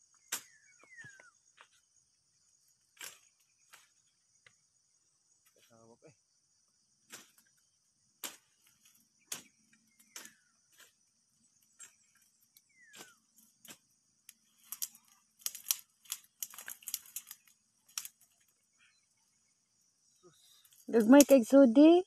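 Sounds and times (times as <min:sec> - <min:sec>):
high insect drone: 0:00.0 - 0:22.0
dry stalks snapping: 0:03.0 - 0:03.9, 0:08.2 - 0:11.0, 0:11.8 - 0:18.6, 0:20.7 - 0:21.4.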